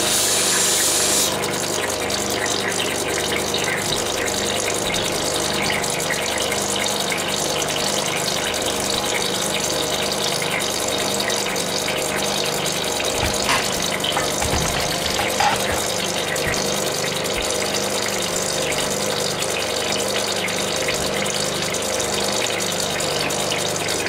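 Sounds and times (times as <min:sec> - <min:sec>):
water hissing and splashing: 0:00.0 - 0:24.0
stone grinding against wheel: 0:13.1 - 0:16.1.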